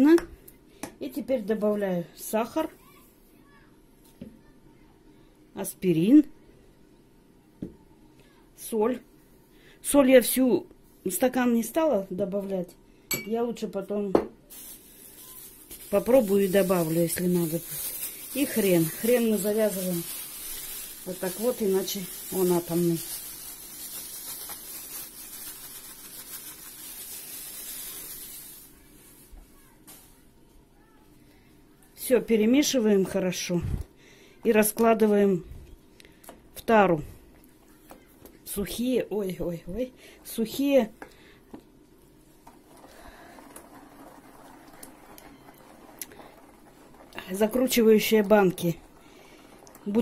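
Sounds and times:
plastic bag rustling and crinkling: 14.5s - 30.3s, 42.2s - 50.0s.

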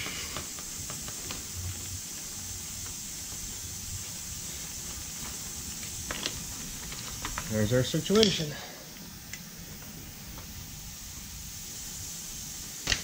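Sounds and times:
steady hiss: 0.0s - 13.0s
metal parts clicking: 8.1s - 8.7s.

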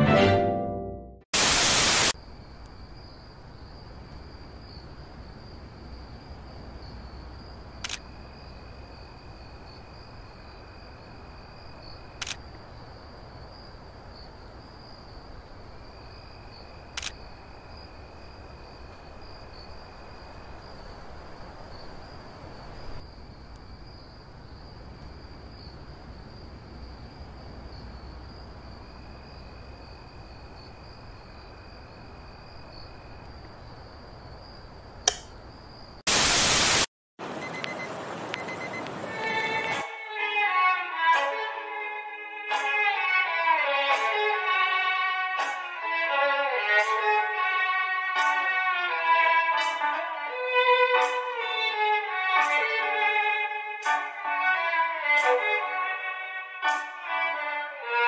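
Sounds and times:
loud static hiss: 1.4s - 2.4s, 36.1s - 39.8s.

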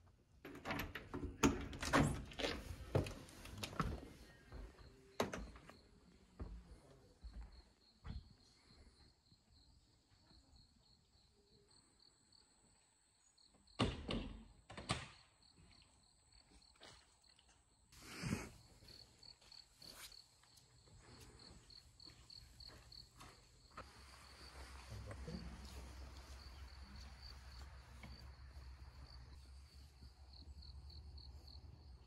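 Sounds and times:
insect chirping: 18.5s - 32.0s.

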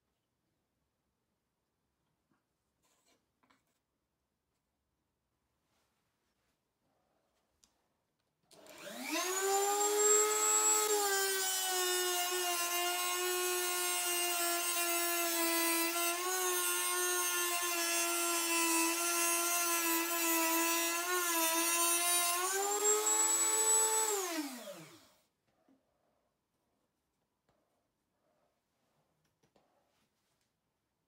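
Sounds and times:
rotary tool whining: 8.6s - 25.1s.

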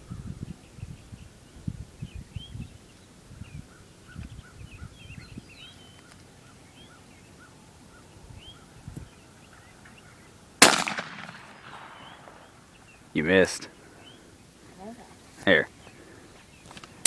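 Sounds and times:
small birds chirping: 0.0s - 10.7s, 11.4s - 17.0s
shotgun shot with echo: 10.6s - 12.4s.

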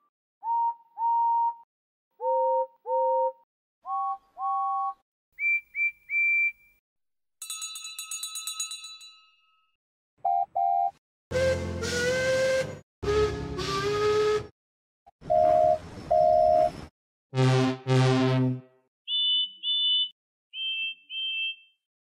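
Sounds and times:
bell ringing rapidly: 7.4s - 9.6s
steam locomotive whistle toots: 11.3s - 14.5s.

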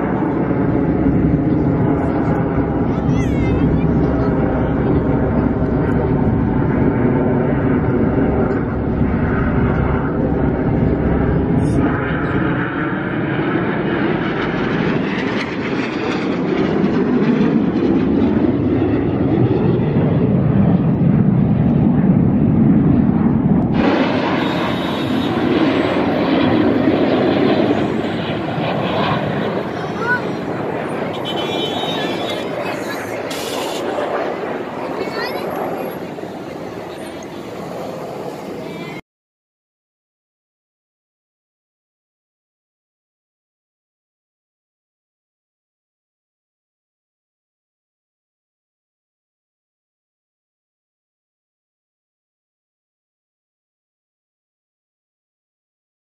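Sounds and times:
jet engines roaring overhead: 0.0s - 39.0s.

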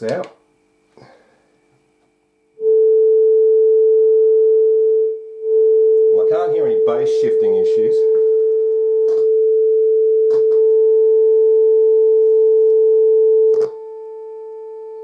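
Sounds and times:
steady test tone through speakers: 2.5s - 15.0s.

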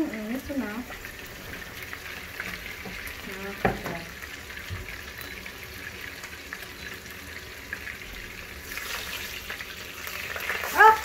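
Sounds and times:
fish sizzling in hot oil: 0.0s - 11.0s.

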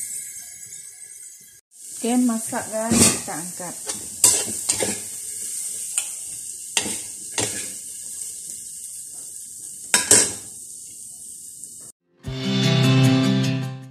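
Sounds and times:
frying sizzle: 0.0s - 12.0s
metal spatula scraping a wok: 2.8s - 6.2s, 6.8s - 7.8s.

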